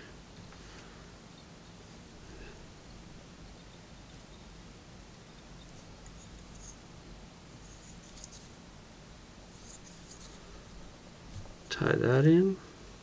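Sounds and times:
low steady hum: 0.0s - 13.0s
thread wrapping scratchy ticking: 5.4s - 6.8s, 7.6s - 8.6s, 9.5s - 11.8s.

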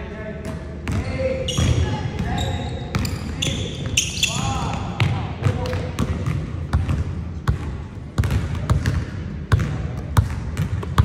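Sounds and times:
basketball bouncing on wooden floor: 5.0s - 11.0s.

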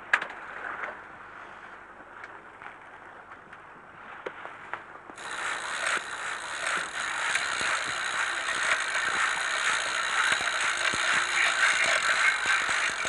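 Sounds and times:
fishing reel ratcheting whir: 5.2s - 13.0s.

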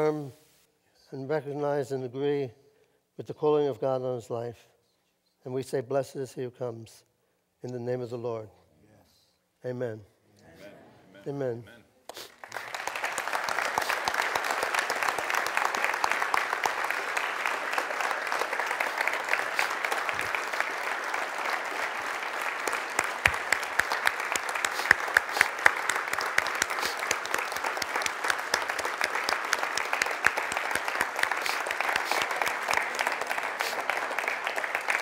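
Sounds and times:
crowd clapping: 12.1s - 35.0s.

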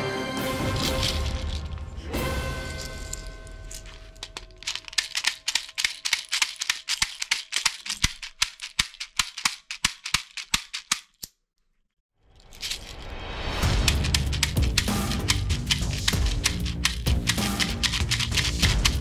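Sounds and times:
rapid plastic clicking: 4.2s - 11.3s, 13.7s - 19.0s.

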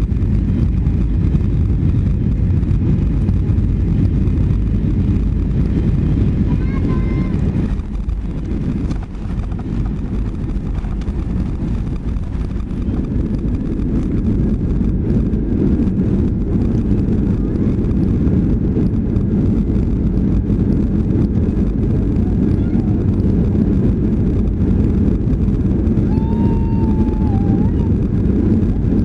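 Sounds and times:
plane engines and wheels rumbling: 0.0s - 29.0s.

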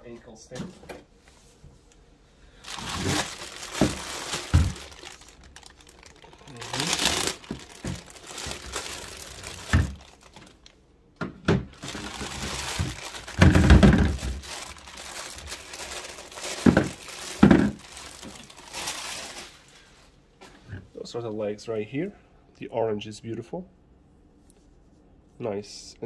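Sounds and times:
plastic bags crinkling and tearing: 2.6s - 10.8s, 11.6s - 19.9s.

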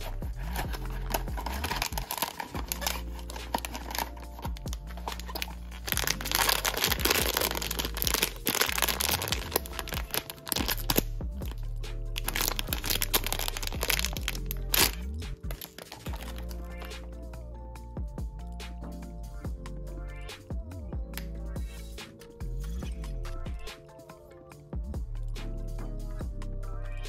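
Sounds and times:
plastic bag crinkling: 0.0s - 11.6s, 12.2s - 16.9s
plastic bag tearing: 0.0s - 11.6s, 12.2s - 16.9s
background music: 0.0s - 27.0s.

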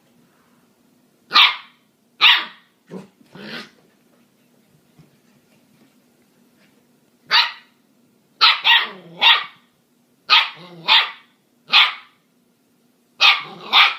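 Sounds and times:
puppies barking: 1.3s - 2.7s, 8.4s - 9.6s, 10.3s - 12.1s, 13.2s - 13.9s
puppy growling: 2.9s - 3.8s, 8.8s - 9.3s, 10.6s - 11.0s, 13.4s - 13.9s.

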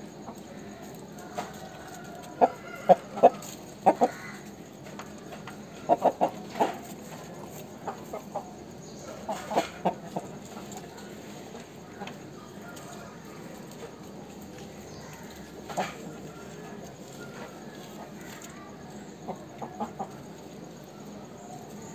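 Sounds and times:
chicken clucking: 0.1s - 21.9s.

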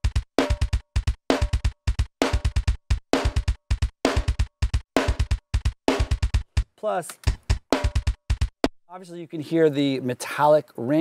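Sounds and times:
snare drum with metallic ring: 0.0s - 6.7s, 7.3s - 8.8s
fast double kick drum: 0.0s - 8.8s.

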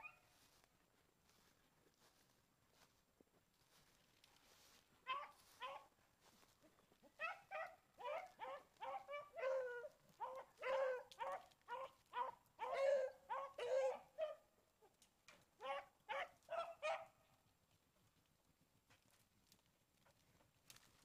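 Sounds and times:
dog barking: 5.1s - 5.9s, 7.1s - 14.4s, 15.6s - 17.2s.

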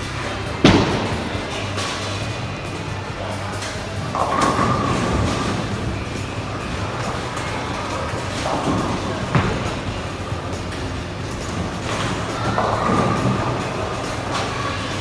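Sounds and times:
bowling pins clattering: 0.0s - 15.0s
bowling ball rumbling: 0.4s - 14.6s
bowling ball thud: 0.6s - 1.6s.

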